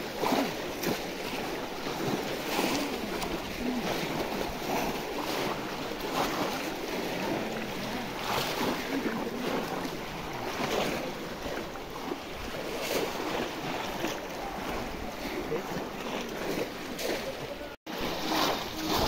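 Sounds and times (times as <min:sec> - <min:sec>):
muddy water sloshing and splashing: 0:00.0 - 0:19.0
wind on microphone: 0:17.9 - 0:19.0.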